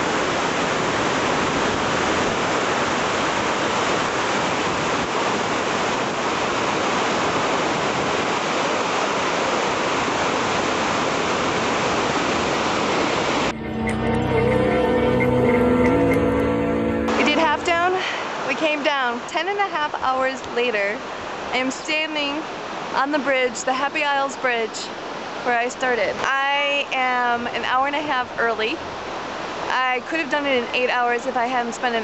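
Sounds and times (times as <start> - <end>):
waterfall rushing: 0.0 - 13.6, 17.0 - 32.0
instrumental music: 13.5 - 17.9.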